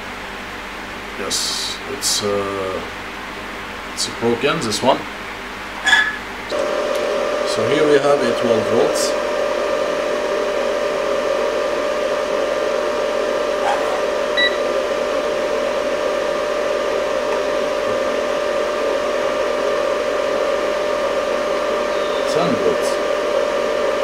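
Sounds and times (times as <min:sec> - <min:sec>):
fan-like whir with hum: 0:00.0 - 0:24.0
short high beep: 0:14.4 - 0:14.6.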